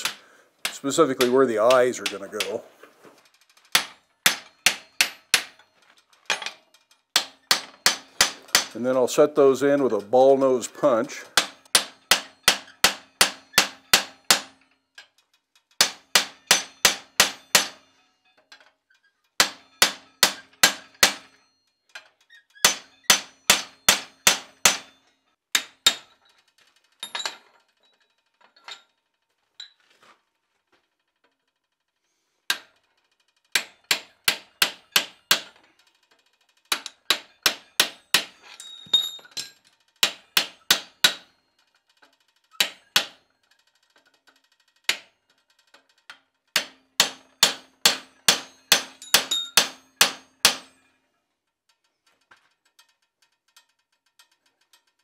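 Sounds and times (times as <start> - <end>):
hammer striking metal punch: 0.0 - 2.6, 3.7 - 5.7, 7.2 - 9.0, 11.4 - 14.7, 15.8 - 18.0, 19.4 - 21.4, 22.6 - 26.2, 33.5 - 35.6, 36.7 - 39.2, 40.0 - 41.3, 42.6 - 43.2, 46.6 - 50.8.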